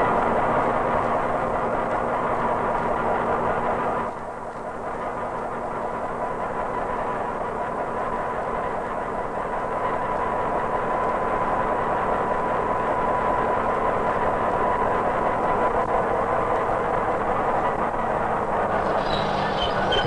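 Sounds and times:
diesel railcar running slowly: 0.0s - 20.0s
thin steady high tone: 18.8s - 20.0s.

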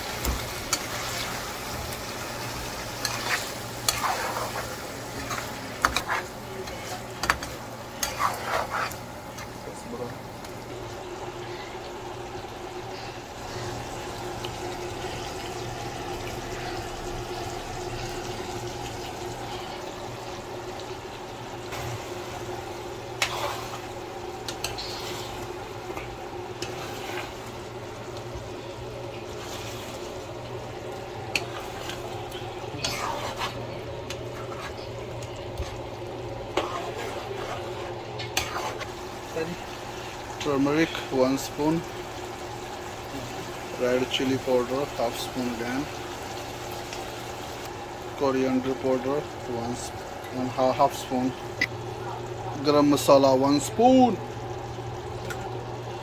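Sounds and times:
chicken sizzling in frying pan: 0.0s - 56.0s
spatula scraping and knocking pan: 32.8s - 34.9s, 36.5s - 38.9s.

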